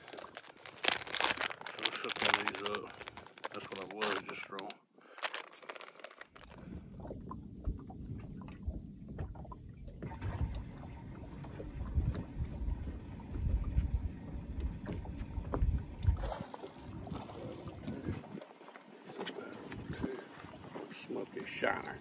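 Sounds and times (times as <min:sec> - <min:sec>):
wind rumbling: 0:06.4 - 0:18.4
waves slapping boat hull: 0:06.4 - 0:21.2.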